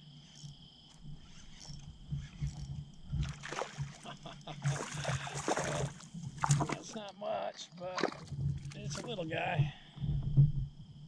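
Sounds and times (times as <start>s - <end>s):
fishing reel cranking: 0.3s - 3.1s
water splashing: 2.1s - 7.1s, 7.7s - 9.6s.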